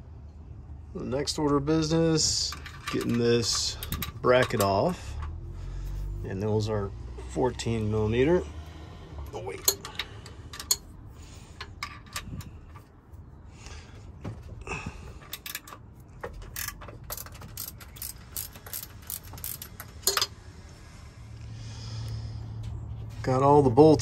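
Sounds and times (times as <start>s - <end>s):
sharp metal clicks: 2.5s - 5.4s, 9.3s - 10.9s, 15.2s - 20.3s
socket ratchet clicking: 2.5s - 5.4s, 9.6s - 10.9s, 15.2s - 20.3s.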